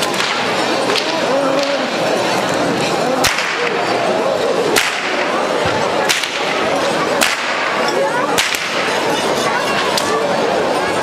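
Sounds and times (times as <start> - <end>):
crowd murmur: 0.0 - 11.0
whips cracking sharply: 3.2 - 3.8, 4.8 - 5.3, 6.1 - 6.6, 7.2 - 7.8, 8.4 - 8.9.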